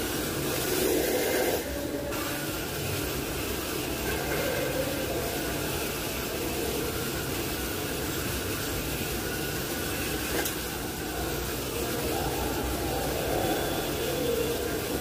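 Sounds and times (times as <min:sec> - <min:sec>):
power tool hissing: 0:00.0 - 0:11.8.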